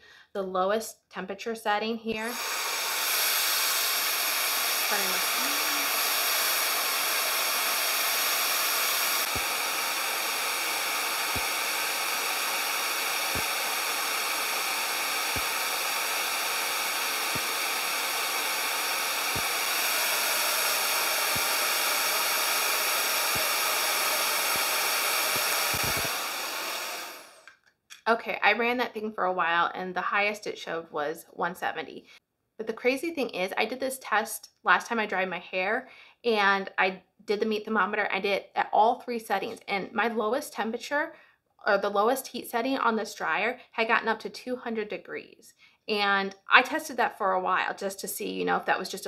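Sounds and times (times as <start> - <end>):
hair dryer running: 2.1 - 27.5.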